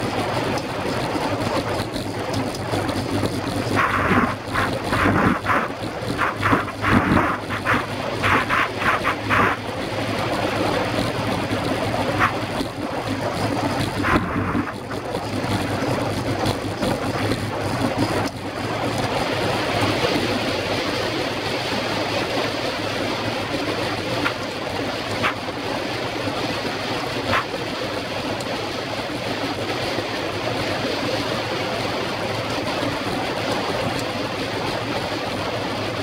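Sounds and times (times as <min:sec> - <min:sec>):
bicycle tyres on wooden boards: 0:01.9 - 0:09.7, 0:12.1 - 0:12.8
wind rushing over microphone: 0:03.7 - 0:09.8.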